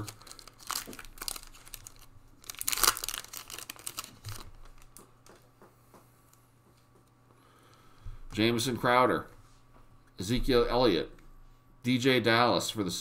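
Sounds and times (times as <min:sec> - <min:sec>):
foil wrapper tearing: 0:00.0 - 0:05.0
rustling of cards and wrapper: 0:00.0 - 0:05.1.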